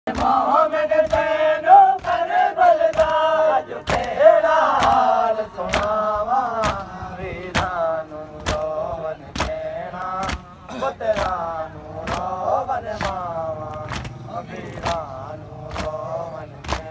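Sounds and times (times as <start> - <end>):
man singing a lament: 0.1 - 16.9.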